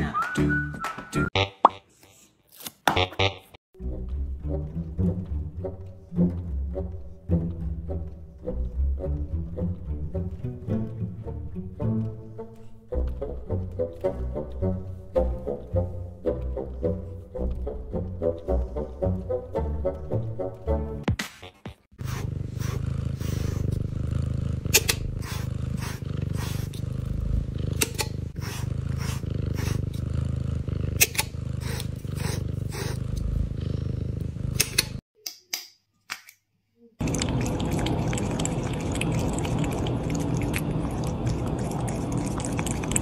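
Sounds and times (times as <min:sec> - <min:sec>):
brush scratching through fur: 0:28.4 - 0:30.0
cat licking and gnawing: 0:37.0 - 0:43.0.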